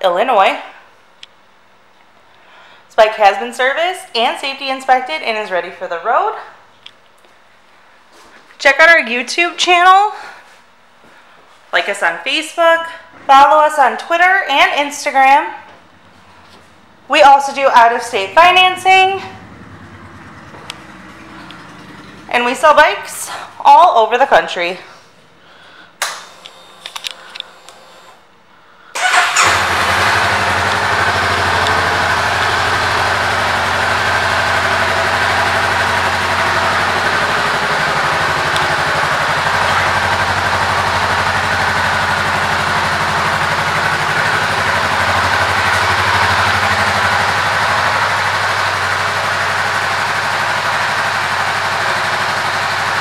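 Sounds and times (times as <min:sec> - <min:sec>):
motorcycle engine starting and idling: 0:15.3 - 0:24.6, 0:28.9 - 0:53.0.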